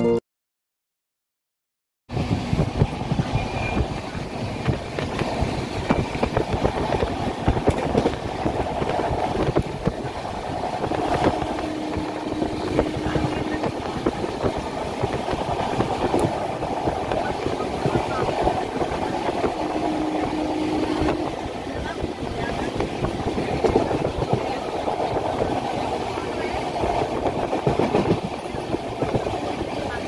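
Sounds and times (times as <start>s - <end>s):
train coach rumbling and rattling: 2.1s - 30.0s
wheels knocking: 2.5s - 30.0s.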